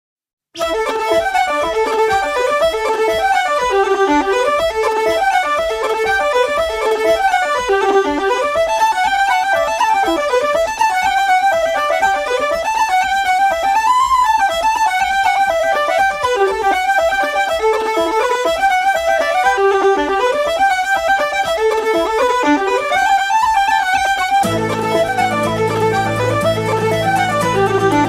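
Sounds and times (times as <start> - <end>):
fast fiddle tune: 0.6 - 28.0.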